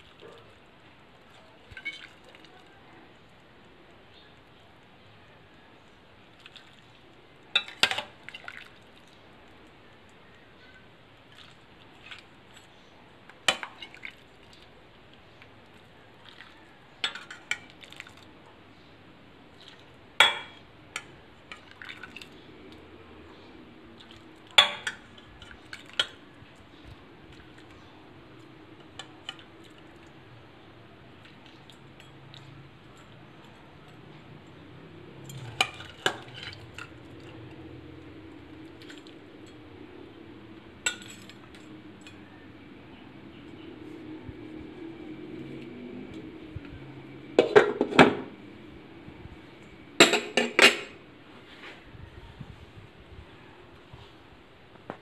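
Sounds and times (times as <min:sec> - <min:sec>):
broth dripping and splashing: 0:00.0 - 0:04.0, 0:06.2 - 0:10.1, 0:11.2 - 0:12.6, 0:13.2 - 0:18.3, 0:20.9 - 0:22.9, 0:23.9 - 0:27.8.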